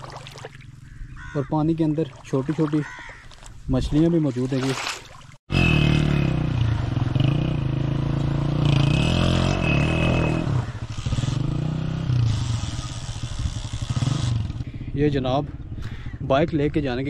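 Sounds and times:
water splashing: 0:00.0 - 0:00.8, 0:01.8 - 0:05.4
motorcycle engine revving: 0:05.5 - 0:17.0.

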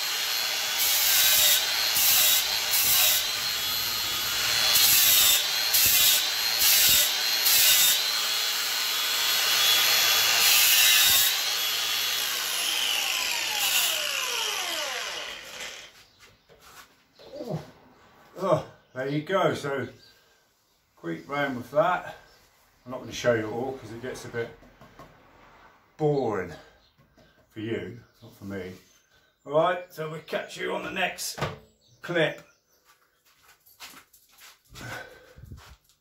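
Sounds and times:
angle grinder motor whine: 0:00.0 - 0:16.0
grinder sanding disc scraping wood: 0:00.0 - 0:17.0.

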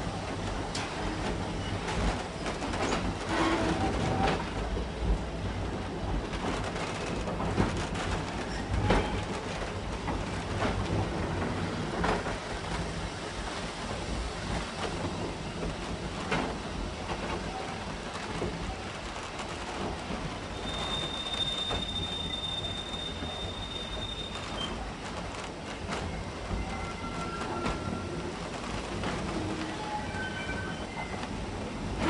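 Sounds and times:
train rumbling: 0:00.0 - 0:32.0
high-pitched wheel squeal: 0:20.5 - 0:24.7.

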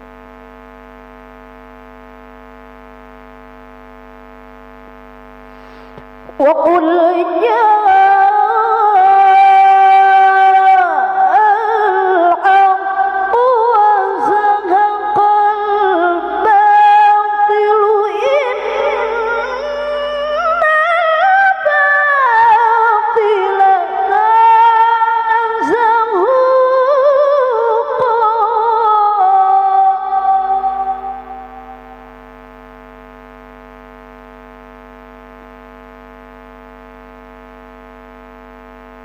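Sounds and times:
woman reciting melodically: 0:06.3 - 0:31.5.

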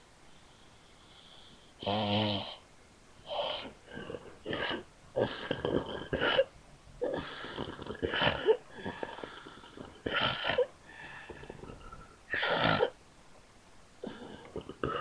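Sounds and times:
woman snoring: 0:01.8 - 0:02.6, 0:03.3 - 0:06.4, 0:07.0 - 0:13.0, 0:14.0 - 0:15.0.

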